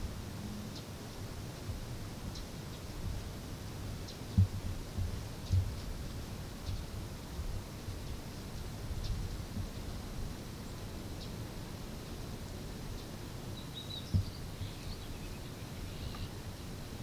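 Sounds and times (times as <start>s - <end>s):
faint bird chirps: 13.0s - 16.4s.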